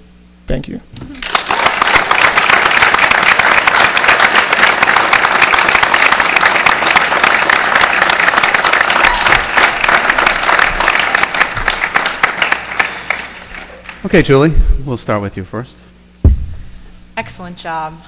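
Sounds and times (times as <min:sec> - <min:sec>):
audience applauding: 0:01.1 - 0:14.2.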